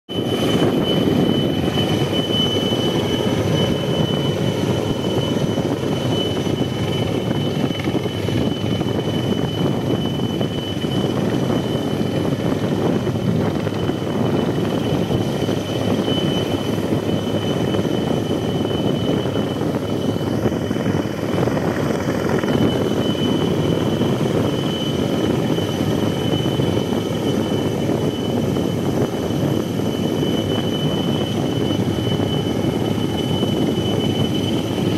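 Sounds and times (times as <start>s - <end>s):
helicopter rotor and engine: 0.1s - 34.9s
high whine: 0.1s - 34.9s.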